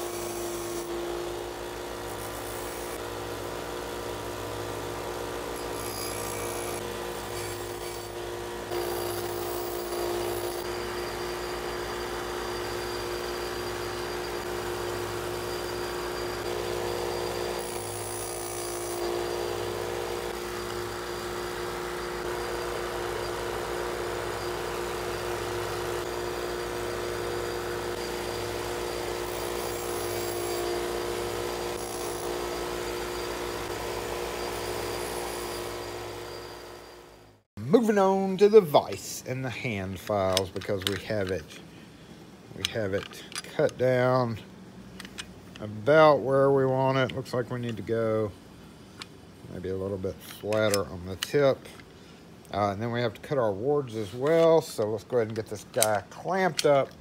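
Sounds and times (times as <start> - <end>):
bench grinder motor hum: 0.0 - 37.4.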